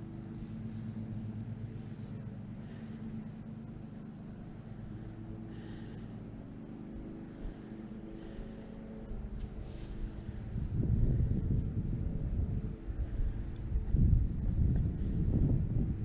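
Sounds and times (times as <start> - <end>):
distant engine drone: 0.0 - 16.0.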